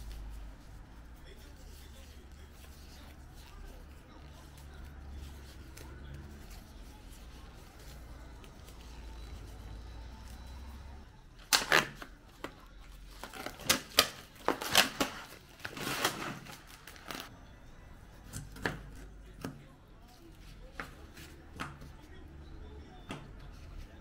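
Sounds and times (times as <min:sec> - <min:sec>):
plastic packaging crackling: 0:11.4 - 0:17.3.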